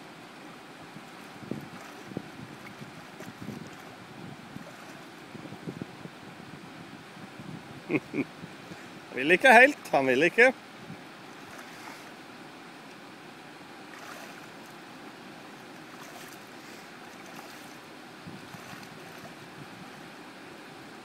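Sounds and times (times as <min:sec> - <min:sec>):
river water rushing: 0:00.0 - 0:07.4, 0:08.3 - 0:21.0
faint small splashes: 0:01.2 - 0:04.0, 0:11.3 - 0:12.2, 0:13.9 - 0:14.8, 0:15.6 - 0:19.4.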